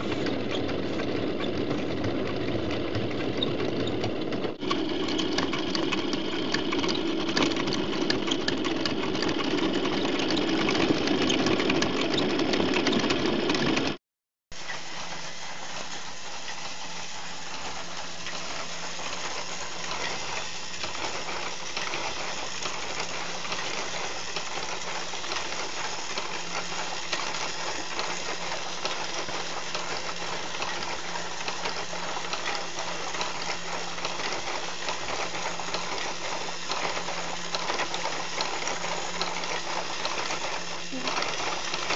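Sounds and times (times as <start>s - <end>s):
whirring toy motor: 0.0s - 13.9s, 14.6s - 41.9s
plastic gears clattering: 17.5s - 41.9s.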